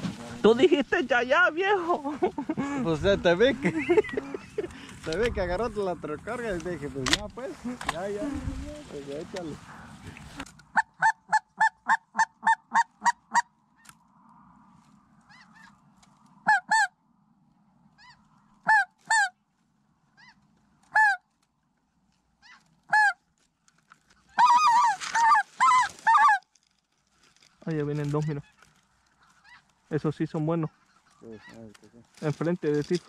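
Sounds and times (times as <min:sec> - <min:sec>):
goose honking: 0:16.4 - 0:16.9, 0:17.9 - 0:19.4, 0:20.1 - 0:21.2, 0:22.4 - 0:23.2, 0:24.3 - 0:26.4.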